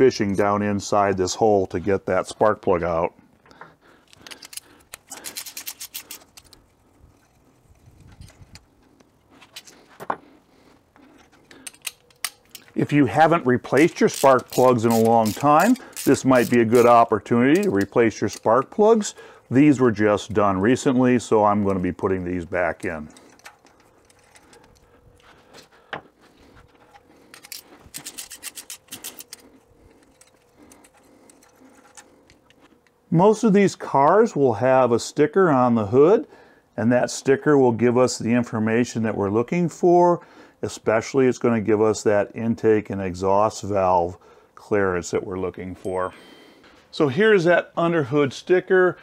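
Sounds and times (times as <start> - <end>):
socket ratchet clicking: 4.1 - 6.6, 13.8 - 18.5, 27.3 - 29.4.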